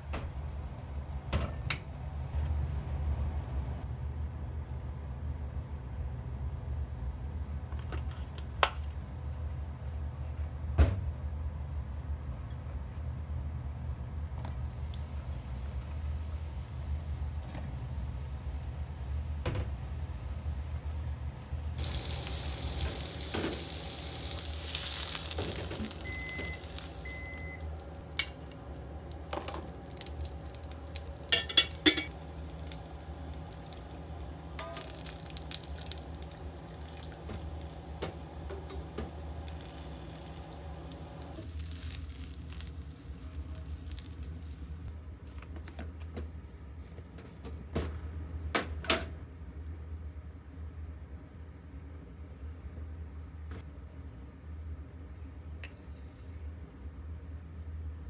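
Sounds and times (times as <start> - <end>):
steady low hum: 0.0 - 48.5
eggplant sizzling in oil: 14.6 - 27.6, 29.7 - 44.4
dishes and utensils clinking: 31.3 - 32.1.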